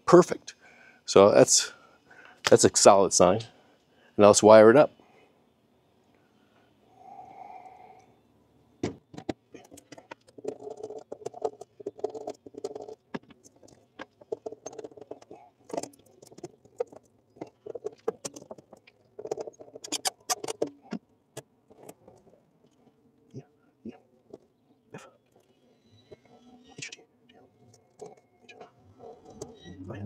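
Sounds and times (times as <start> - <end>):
hand tools clicking and rattling: 9.2 - 21.0.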